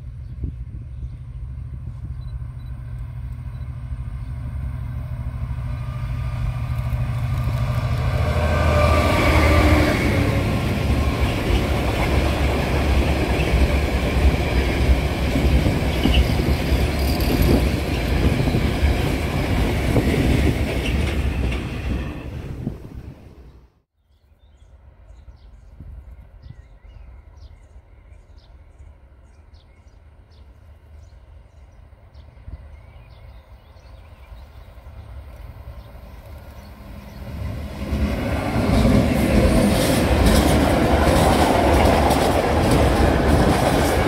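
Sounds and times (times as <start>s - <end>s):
train wheels rumbling on rails: 0.0s - 23.6s, 30.3s - 44.0s
locomotive engine hum: 0.0s - 23.7s, 34.4s - 44.0s.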